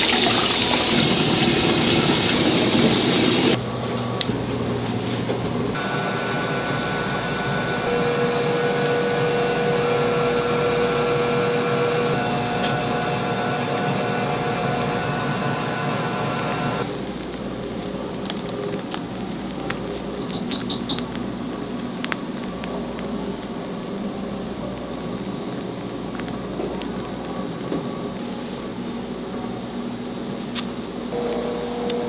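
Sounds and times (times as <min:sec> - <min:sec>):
tap water running: 0:00.0 - 0:03.6
kitchen equipment whining: 0:00.0 - 0:17.2, 0:31.1 - 0:32.0
machine hum: 0:00.9 - 0:32.0.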